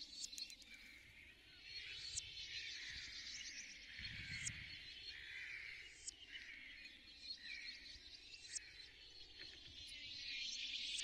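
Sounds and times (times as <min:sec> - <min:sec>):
soft ticks: 0:00.2 - 0:00.8.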